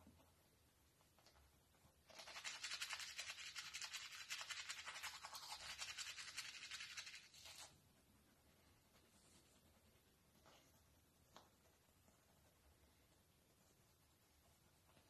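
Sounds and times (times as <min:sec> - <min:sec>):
toothbrush scrubbing teeth: 0:02.1 - 0:07.7.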